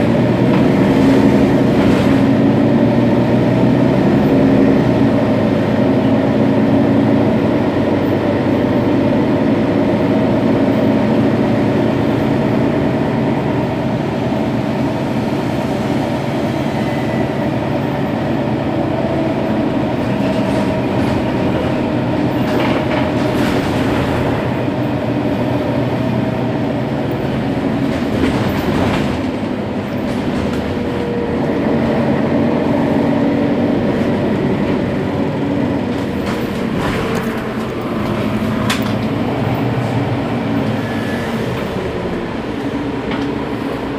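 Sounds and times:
diesel bus engine idling: 29.2s - 43.9s.

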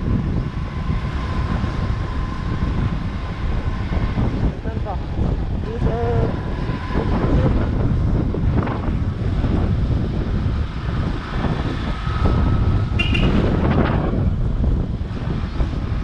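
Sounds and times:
motorcycle engine running: 0.0s - 16.0s
wind buffeting microphone: 0.0s - 16.0s.

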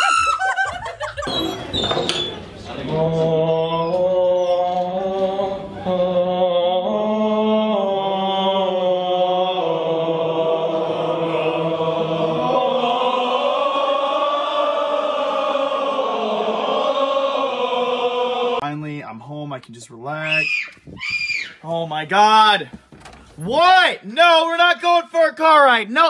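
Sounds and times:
crowd group singing: 2.5s - 18.6s.

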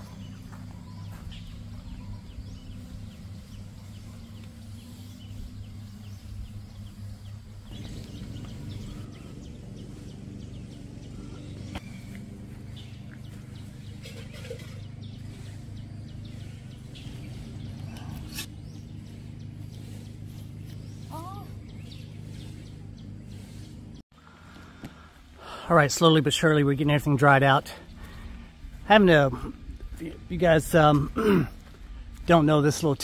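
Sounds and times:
faint bird chirps: 0.0s - 23.9s
steady low hum: 0.0s - 33.0s.

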